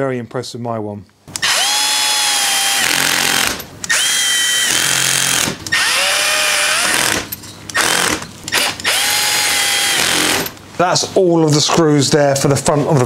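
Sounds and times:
power driver whining: 1.3 - 10.6.

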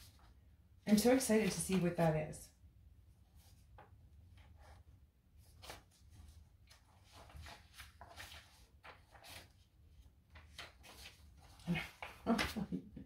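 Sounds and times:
book pages rustling: 3.3 - 12.7.

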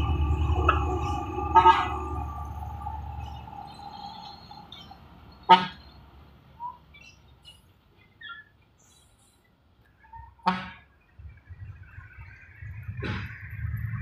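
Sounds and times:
engine and traffic noise: 0.0 - 14.0
vehicle horn toot: 1.0 - 2.5, 5.4 - 5.9
faint bird chirps: 2.9 - 10.4.

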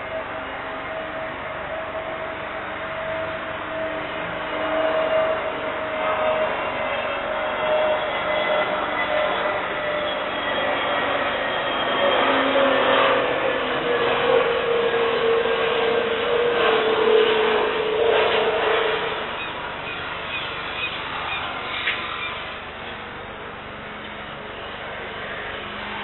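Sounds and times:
jet engine whine: 0.0 - 26.0
rushing jet noise: 0.0 - 26.0.

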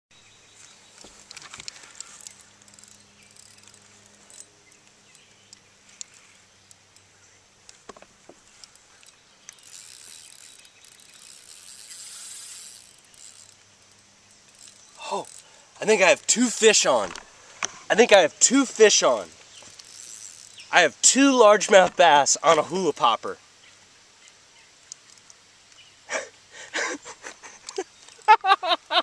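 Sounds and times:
small clicks and ticks: 1.0 - 17.7, 18.5 - 20.7, 24.2 - 25.8, 27.3 - 28.4
faint hiss: 5.0 - 28.8.

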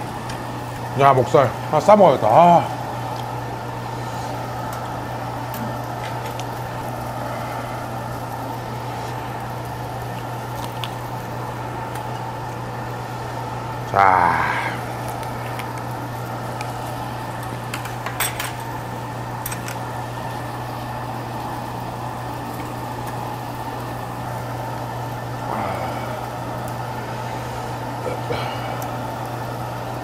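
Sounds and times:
low mechanical hum: 0.0 - 30.0
utensils clicking against dishes: 17.7 - 18.6, 19.4 - 19.8.

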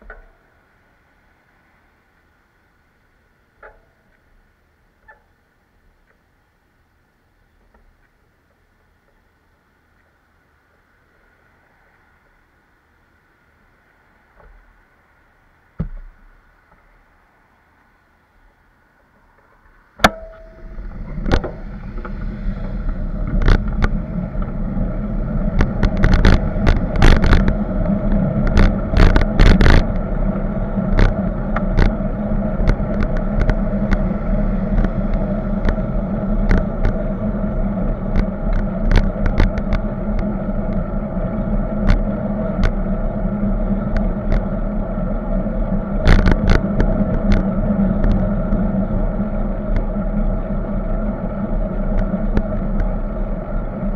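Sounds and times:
wind rumble on microphone: 18.5 - 53.9
sharp clicks and knocks: 20.0 - 24.6, 25.5 - 30.1, 30.9 - 32.0, 32.6 - 37.1, 38.1 - 40.8, 41.8 - 42.8, 46.0 - 48.6.

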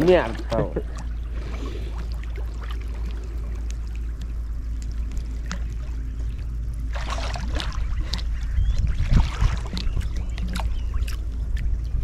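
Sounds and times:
water sloshing and splashing: 0.0 - 12.0
wind rumble on microphone: 0.0 - 12.0.

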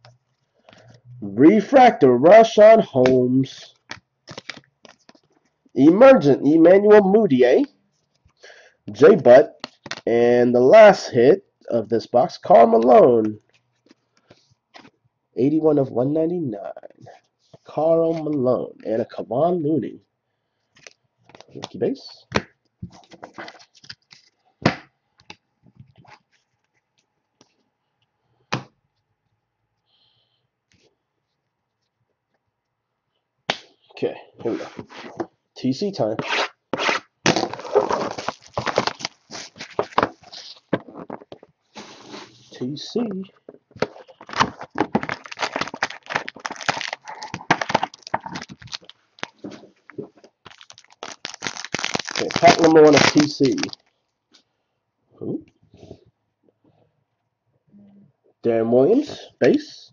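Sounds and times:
cards rustling: 3.0 - 5.4, 20.8 - 24.4, 36.2 - 42.4, 43.4 - 53.9
foil packs crinkling: 4.3 - 5.2, 37.3 - 40.6, 43.8 - 53.9.

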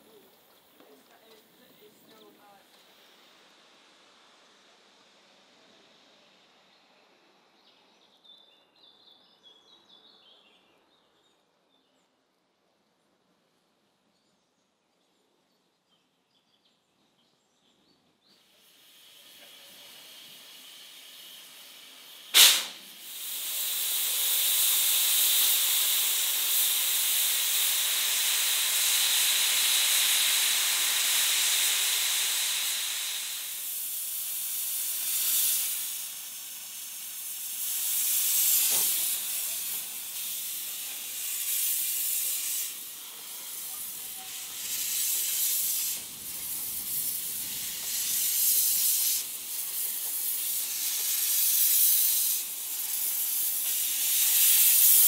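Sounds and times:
steam locomotive hissing steam: 0.0 - 7.5, 18.3 - 55.0
short sharp blast: 22.3 - 22.9.

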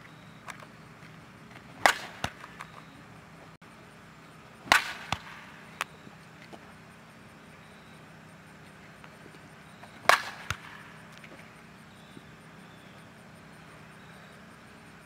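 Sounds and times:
bat striking softball: 1.7 - 2.9, 4.6 - 5.9, 9.8 - 11.4.

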